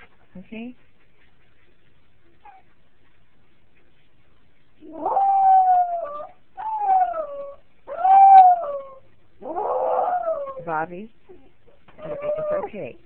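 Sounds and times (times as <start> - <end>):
dog howling: 4.8 - 10.7, 12.0 - 12.8.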